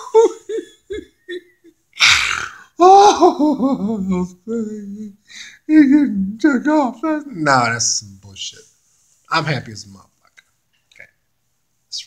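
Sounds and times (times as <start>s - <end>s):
man laughing: 0.0s - 1.8s.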